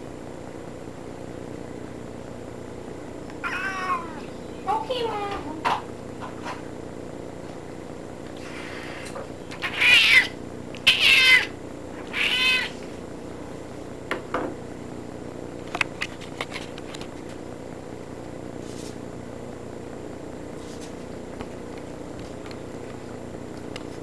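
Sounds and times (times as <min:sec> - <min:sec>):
cat meowing: 0:03.4 - 0:04.4, 0:09.6 - 0:12.8.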